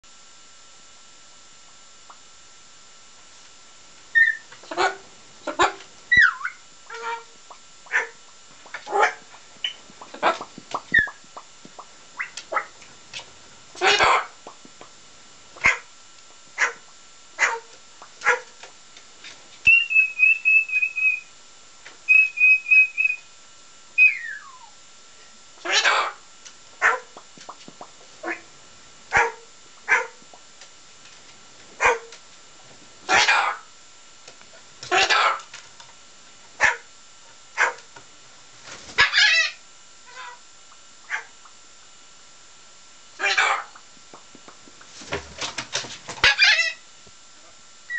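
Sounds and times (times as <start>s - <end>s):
bird imitating dog bark: 4.2s - 8.2s, 8.9s - 9.3s, 13.8s - 14.4s, 15.6s - 15.9s, 16.6s - 16.8s, 17.4s - 18.5s, 25.6s - 26.2s, 26.8s - 27.2s, 29.1s - 30.2s, 31.8s - 32.1s, 33.1s - 33.7s, 34.9s - 35.4s, 36.6s - 36.9s, 37.6s - 37.8s, 41.1s - 41.3s, 43.2s - 43.8s
bird pulsing whistle notes: 19.7s - 21.3s, 22.1s - 23.3s, 24.0s - 24.8s.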